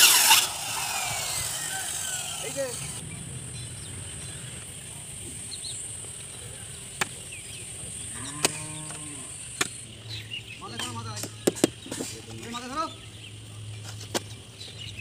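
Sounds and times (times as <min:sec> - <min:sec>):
cow mooing: 0:08.1 - 0:09.4.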